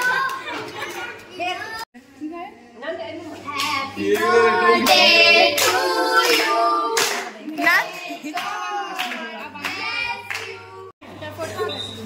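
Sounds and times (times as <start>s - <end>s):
people singing together: 3.7s - 11.0s
hands clapping: 7.0s - 7.3s.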